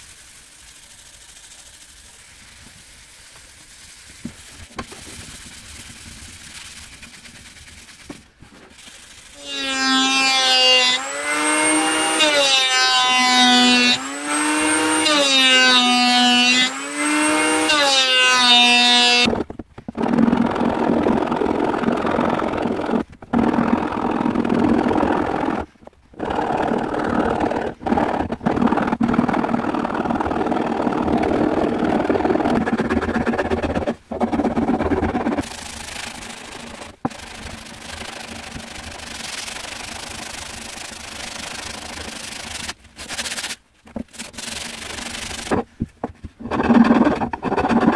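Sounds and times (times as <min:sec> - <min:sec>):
sanding block rubbing wood: 0:00.0 - 0:19.3, 0:30.2 - 0:45.7, 0:46.4 - 0:47.9
electric planer shaving wood: 0:08.8 - 0:19.4, 0:20.0 - 0:42.8, 0:46.5 - 0:47.9
file rasping on wood: 0:46.4 - 0:47.9.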